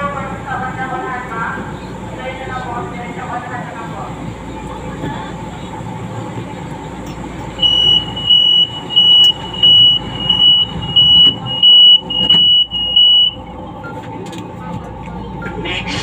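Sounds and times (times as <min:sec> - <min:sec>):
low train rumble: 0:00.0 - 0:16.0
train door warning beeps: 0:07.5 - 0:14.2.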